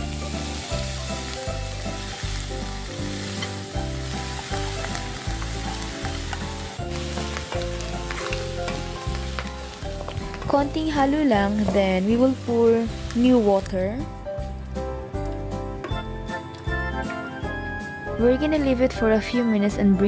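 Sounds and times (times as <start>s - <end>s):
food sizzling in oil: 0.0s - 13.8s
background music: 0.0s - 20.0s.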